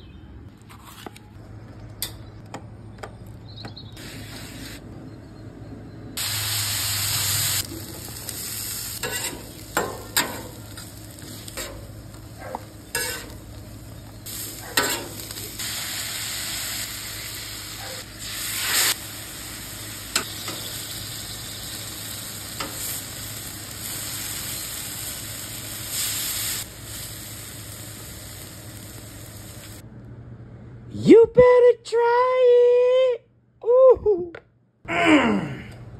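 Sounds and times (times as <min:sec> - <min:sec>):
cooking oil spray hissing: 0:06.2 - 0:29.8
food sizzling on griddle: 0:06.2 - 0:29.8
metal tongs scraping griddle: 0:09.0 - 0:13.4, 0:14.3 - 0:15.4.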